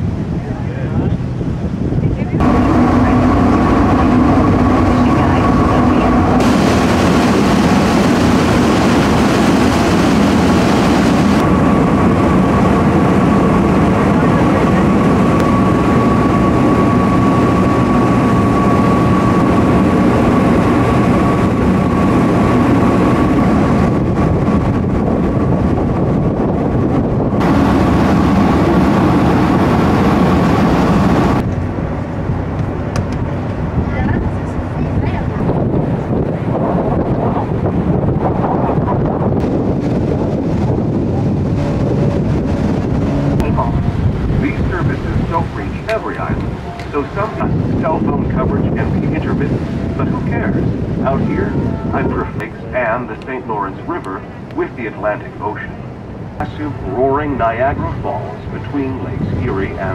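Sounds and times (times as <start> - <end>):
boat engine drone: 0.0 - 59.9
rush of water wash: 0.0 - 59.9
wind: 0.0 - 59.9
thin steady whine: 2.3 - 25.0, 39.4 - 59.9.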